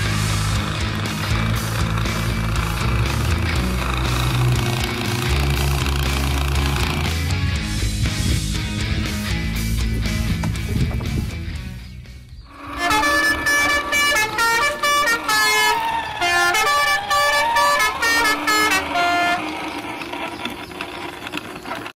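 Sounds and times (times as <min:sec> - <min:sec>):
siren-like wail: 0:12.5 - 0:20.2
electronic toy horn tune: 0:12.5 - 0:20.4
faint scraping: 0:12.5 - 0:21.9.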